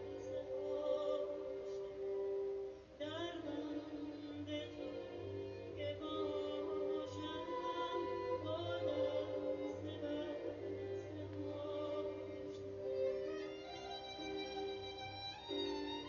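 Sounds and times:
woman singing: 0:00.0 - 0:02.3, 0:03.0 - 0:13.1
string ensemble sustained notes: 0:00.0 - 0:16.0.

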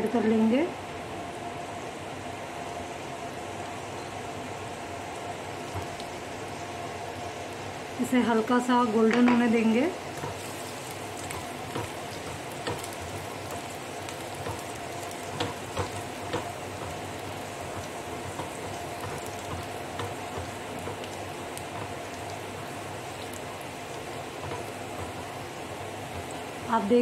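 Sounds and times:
frying hiss: 0:00.0 - 0:27.0
small pops and crackles: 0:10.1 - 0:25.4.

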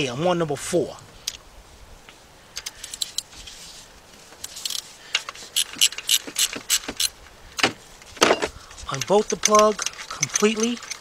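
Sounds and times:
ratchet clicking: 0:04.4 - 0:04.9, 0:05.6 - 0:07.2, 0:08.9 - 0:11.0.

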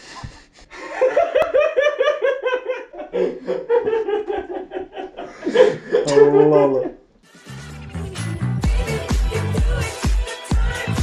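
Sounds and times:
lower laugh: 0:00.8 - 0:07.0
men laughing hard: 0:00.8 - 0:07.0.

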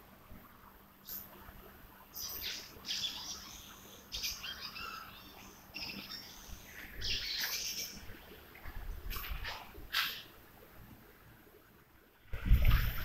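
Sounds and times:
birds chirping: 0:02.1 - 0:08.5.

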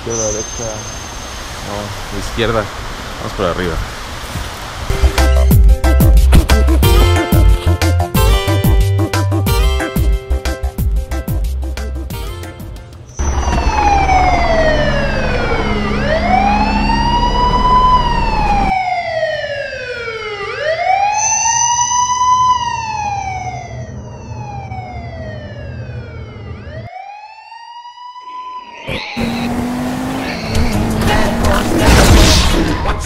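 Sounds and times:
police siren wailing: 0:13.2 - 0:31.6.

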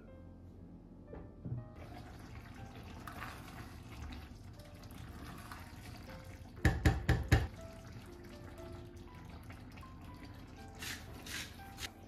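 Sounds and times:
spoon knocking against pot: 0:06.6 - 0:07.5.

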